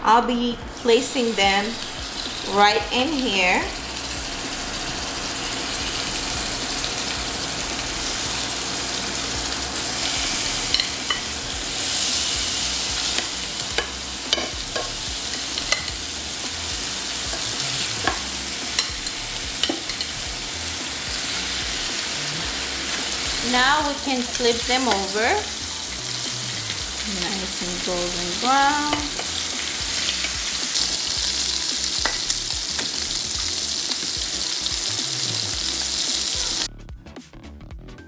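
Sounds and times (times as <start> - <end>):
meat sizzling in oil: 0.7 - 36.7
metal tongs clicking on pan: 10.7 - 11.3, 13.2 - 15.9, 17.3 - 20.1.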